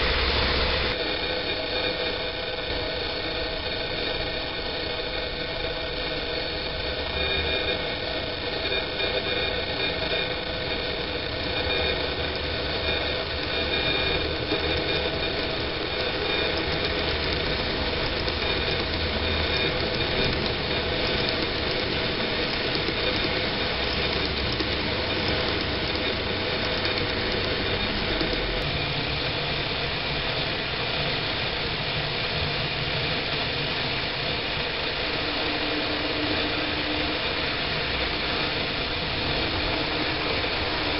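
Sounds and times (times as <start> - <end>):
model train motor hum: 0.0 - 40.9
small wheels rolling on rails: 0.0 - 40.9.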